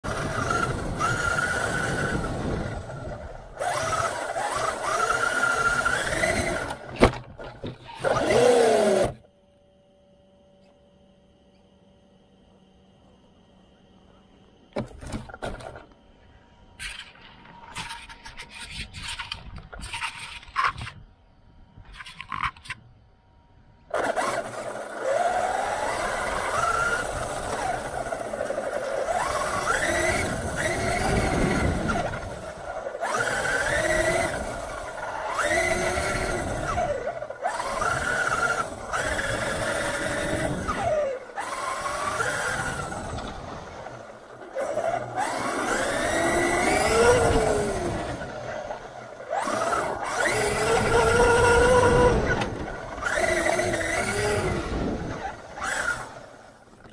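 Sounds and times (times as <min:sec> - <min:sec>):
electric motor whining: 0:00.0 - 0:09.3, 0:23.8 - 0:56.9
tyres rumbling and chassis rattling: 0:00.0 - 0:09.3, 0:23.9 - 0:56.9.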